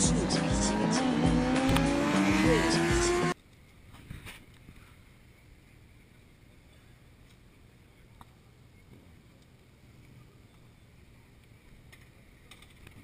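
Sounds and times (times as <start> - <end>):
loud sound cut off: 0.0 - 3.4.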